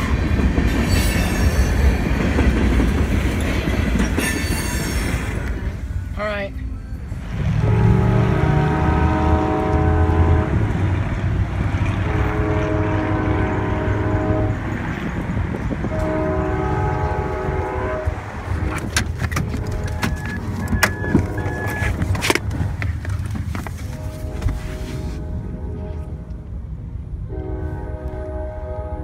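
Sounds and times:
train rumbling past: 0.0s - 29.0s
locomotive air horn blasts: 7.5s - 10.8s, 12.0s - 14.8s, 15.8s - 18.8s, 19.4s - 22.1s, 23.9s - 26.3s, 27.3s - 29.0s.

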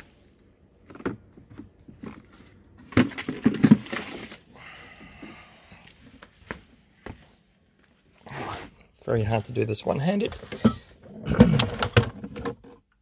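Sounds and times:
plastic scraping on plastic: 0.8s - 4.4s.

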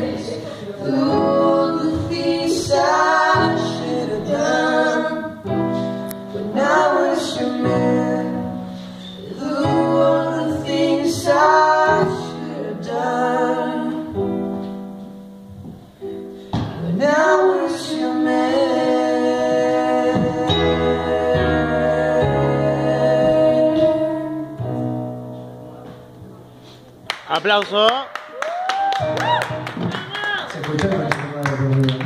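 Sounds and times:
young male voices singing: 0.0s - 5.5s, 6.3s - 14.3s, 16.8s - 24.5s
electric keyboard chords: 0.0s - 27.6s.

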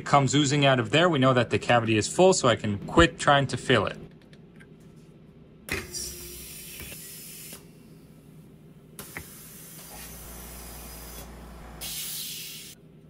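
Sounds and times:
compressed air hissing: 5.8s - 7.9s, 9.0s - 12.8s.

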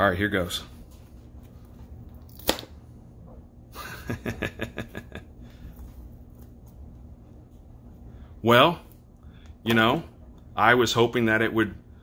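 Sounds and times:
sharp crack of bond breaking: 2.3s - 2.8s.

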